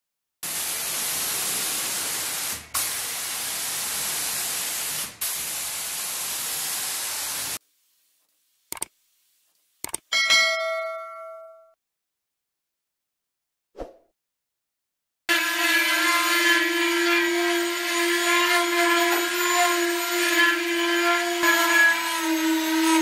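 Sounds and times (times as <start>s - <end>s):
spray gun hissing: 0.4s - 7.6s
sharp clicks: 8.7s - 8.9s, 9.8s - 10.1s
bell-like ding: 10.1s - 11.8s.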